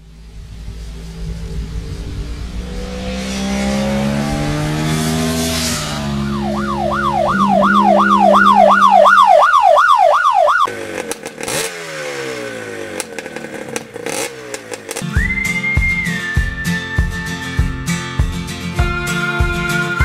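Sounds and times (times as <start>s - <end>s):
siren-like warble: 0.0s - 10.7s
motorcycle engine revving: 0.0s - 19.0s.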